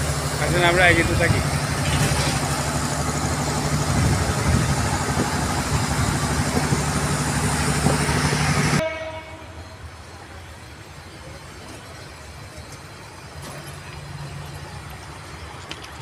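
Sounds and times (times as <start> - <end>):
diesel train engine idling: 0.0 - 16.0.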